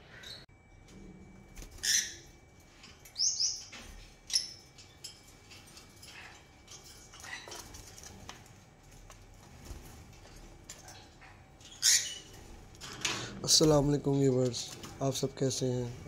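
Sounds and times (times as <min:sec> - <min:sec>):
lovebirds chirping: 0:03.0 - 0:04.8.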